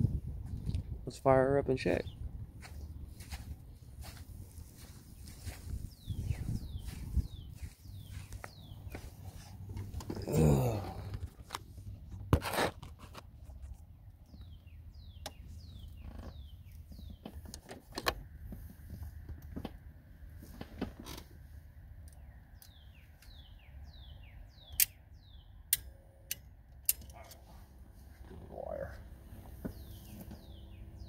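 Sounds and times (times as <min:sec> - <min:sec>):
sharp clicks: 0:24.7 - 0:25.0.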